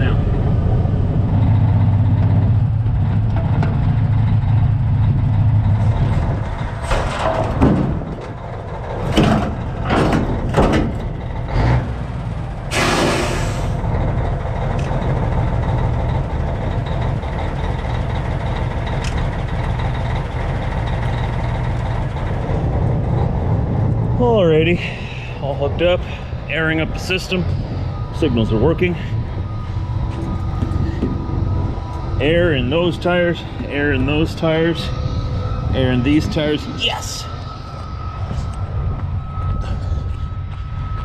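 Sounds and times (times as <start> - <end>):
diesel truck engine running: 0.0 - 41.0
compressed air hiss: 12.7 - 13.8
short air hisses and clunks: 12.7 - 13.8.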